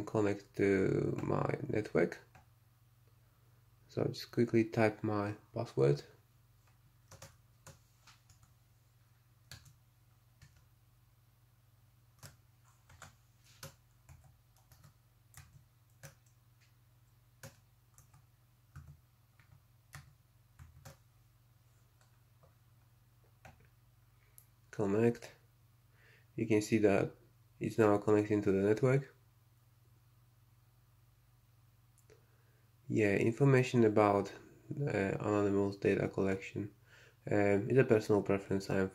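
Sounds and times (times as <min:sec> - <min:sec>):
faint low hum: 0:00.0 - 0:38.9.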